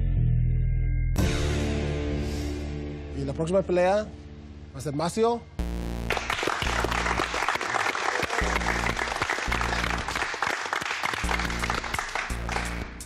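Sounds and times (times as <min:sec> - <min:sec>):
background music with bass line: 0:00.0 - 0:07.4, 0:08.3 - 0:10.4, 0:11.2 - 0:13.0
people clapping: 0:06.1 - 0:13.0.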